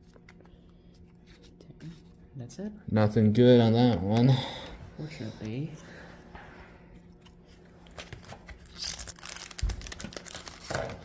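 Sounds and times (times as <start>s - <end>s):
foil wrapper crinkling and tearing: 8.1s - 11.0s.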